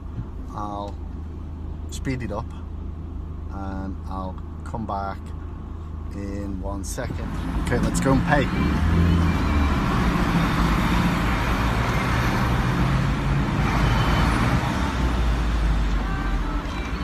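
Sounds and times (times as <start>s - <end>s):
car engine hum: 0.0s - 17.0s
road noise rushing: 5.3s - 17.0s.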